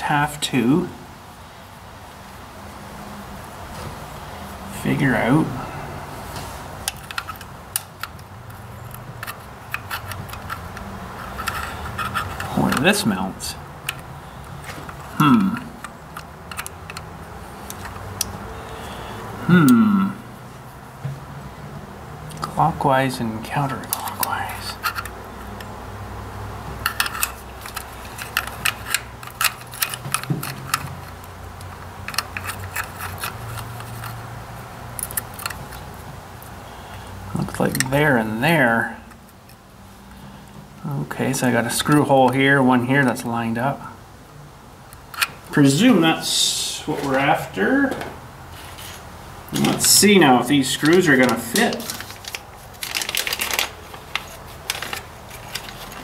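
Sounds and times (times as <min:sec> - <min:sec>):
clicks and taps of wires handled: 0:26.7 - 0:34.2, 0:34.9 - 0:36.6.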